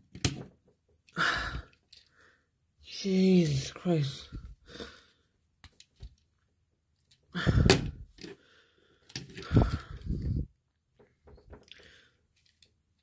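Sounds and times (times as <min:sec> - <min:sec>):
plastic rubbing and clacking: 0:10.9 - 0:11.8.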